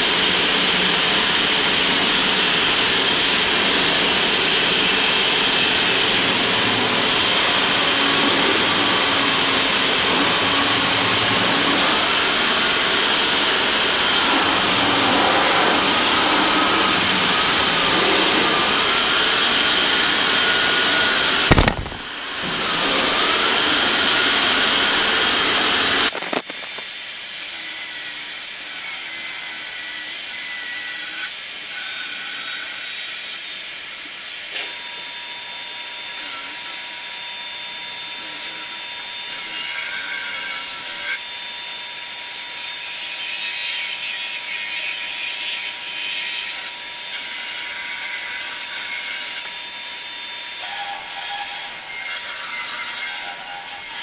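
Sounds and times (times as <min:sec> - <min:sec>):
shop vacuum running: 0:00.0 - 0:27.6
power tool cutting wood: 0:00.0 - 0:54.0.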